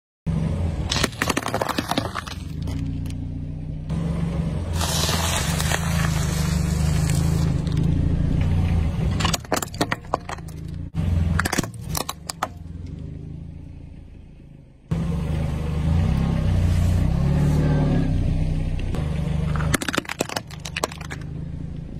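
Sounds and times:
car engine idling: 0:01.9 - 0:17.6
biscuit packet crunching under tyre: 0:04.8 - 0:07.8
hard plastic cracking: 0:19.6 - 0:21.3.

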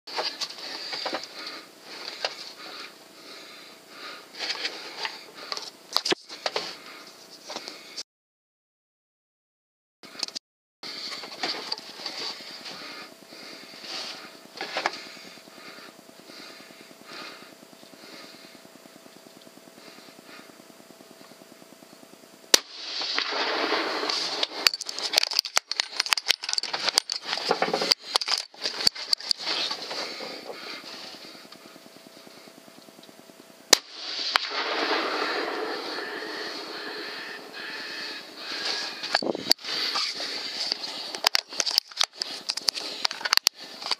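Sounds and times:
rifle shot: 0:22.5 - 0:25.1, 0:33.7 - 0:37.4.

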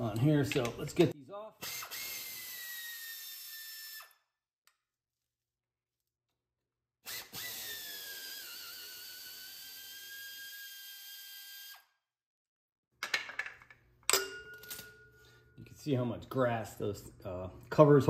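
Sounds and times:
power drill whining: 0:01.6 - 0:04.2, 0:07.1 - 0:11.9.

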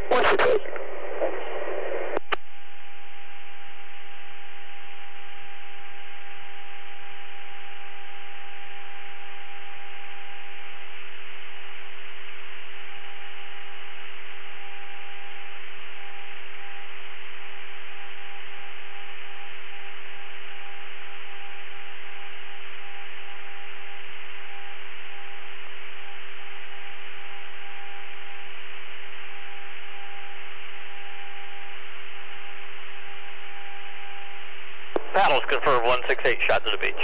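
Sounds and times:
radio channel hiss: 0:00.0 - 0:02.3, 0:34.9 - 0:37.0
constant low hum tone: 0:00.0 - 0:37.0.

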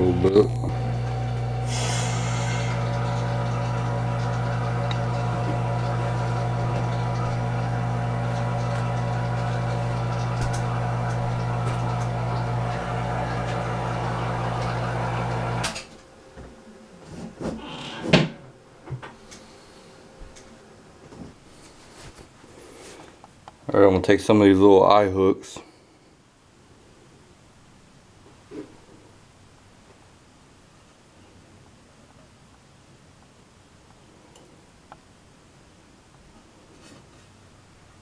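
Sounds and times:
electric motor humming: 0:00.0 - 0:15.8.

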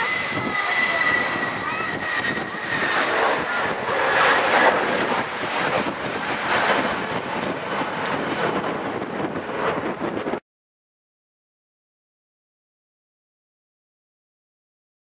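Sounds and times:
jet airliner climbing: 0:00.0 - 0:10.4.

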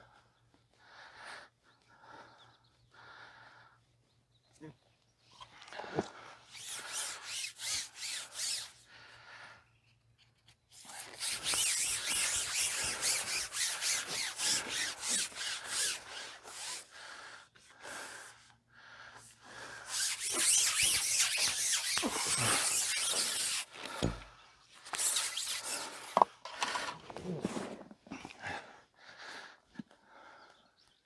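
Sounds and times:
dry rubbing and scraping: 0:06.5 - 0:08.9, 0:10.1 - 0:16.9, 0:19.6 - 0:28.0.

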